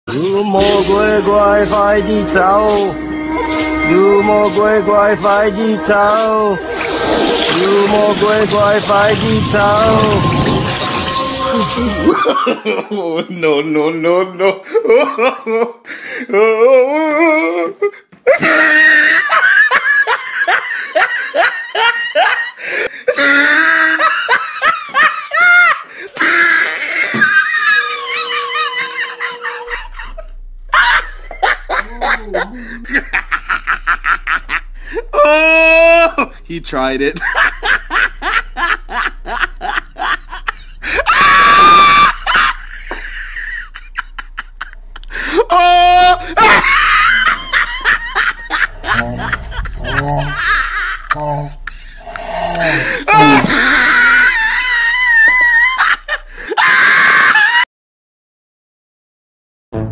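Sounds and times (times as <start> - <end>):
woman laughing hard: 12.0 - 13.2, 14.6 - 15.8, 18.3 - 25.9, 26.5 - 35.1, 37.2 - 52.0, 52.6 - 57.6
woman squealing: 41.1 - 42.5.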